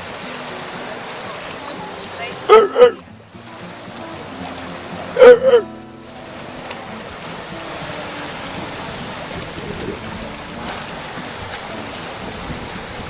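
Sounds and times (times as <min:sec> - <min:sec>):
sea water lapping around rocks: 0:00.0 - 0:13.0
wind noise on microphone: 0:07.1 - 0:13.0.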